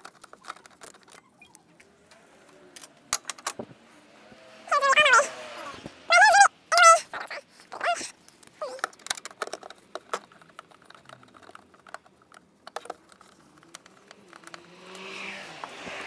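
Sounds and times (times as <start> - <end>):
dog whimpering: 4.7 - 8.9.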